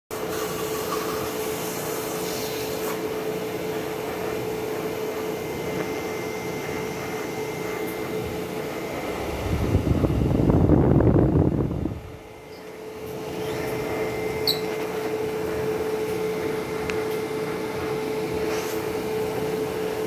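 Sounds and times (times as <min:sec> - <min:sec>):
laser engraver whirring: 0:00.2 - 0:20.0
low rumble: 0:08.9 - 0:12.4.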